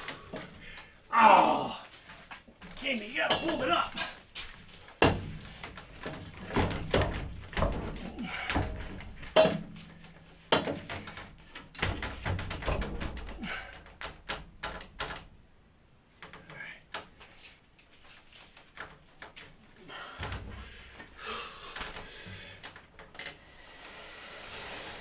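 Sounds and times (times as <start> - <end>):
metal pipe knocking on timber: 9.3 - 9.8.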